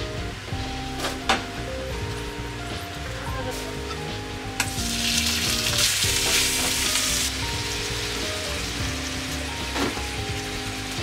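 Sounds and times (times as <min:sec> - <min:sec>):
food sizzling in a frying pan: 0:04.6 - 0:11.0.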